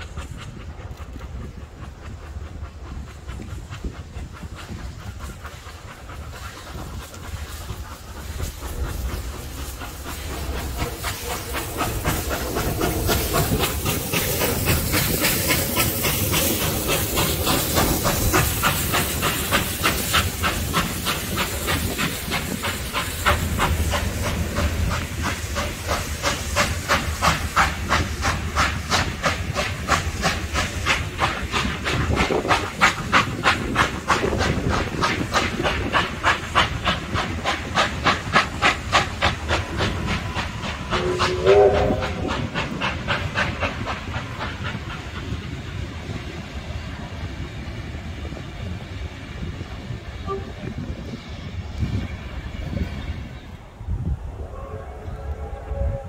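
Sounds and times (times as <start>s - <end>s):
steam hissing: 0.0s - 56.0s
steam locomotive chuffing: 0.0s - 56.0s.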